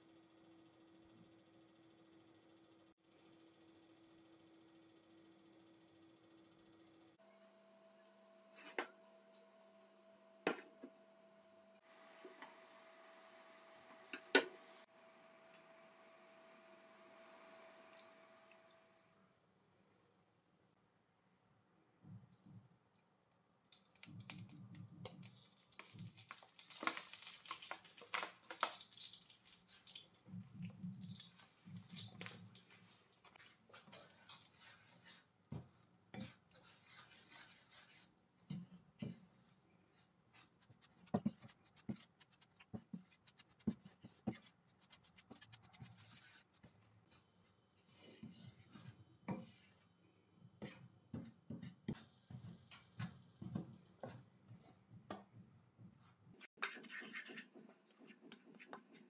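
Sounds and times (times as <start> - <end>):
spoon scraping a pan: 36.2 - 38.1, 56.5 - 59.0.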